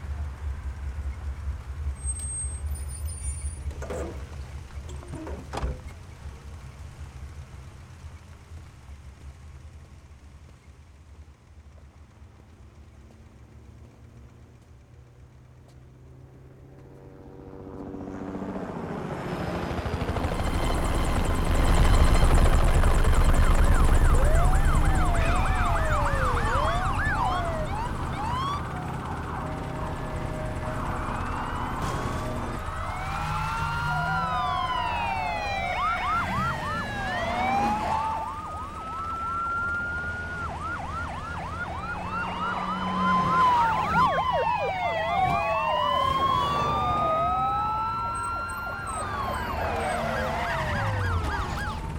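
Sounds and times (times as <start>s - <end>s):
police sirens wailing and yelping: 18.7s - 51.9s.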